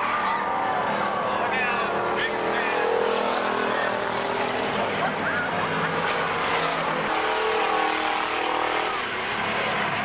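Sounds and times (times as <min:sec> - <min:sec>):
people's voices: 0:00.0 - 0:06.6
race car engines running: 0:00.0 - 0:10.0.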